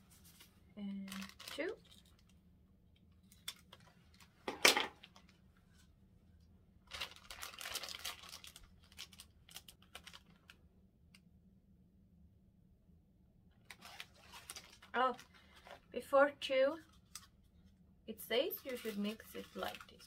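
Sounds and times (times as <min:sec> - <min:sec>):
plastic crinkling: 0:00.2 - 0:02.4, 0:03.1 - 0:05.4, 0:06.8 - 0:10.6, 0:13.6 - 0:16.0, 0:18.4 - 0:20.0
scissors cutting plastic packet: 0:01.1 - 0:02.3, 0:06.9 - 0:10.5.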